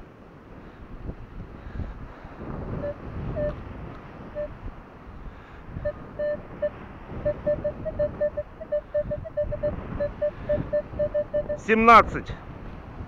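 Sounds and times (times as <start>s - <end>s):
wind buffeting microphone: 0.0s - 13.0s
metal detector short beeps: 2.8s - 3.6s, 5.9s - 11.8s.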